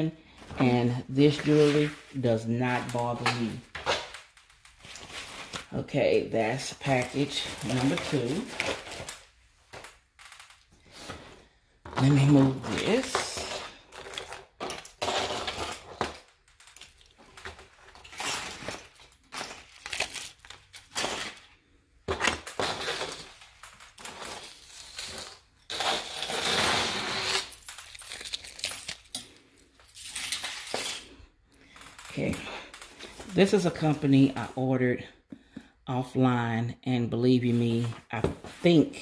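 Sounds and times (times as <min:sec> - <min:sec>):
jewelry clinking and rattling: 0:12.0 - 0:21.4.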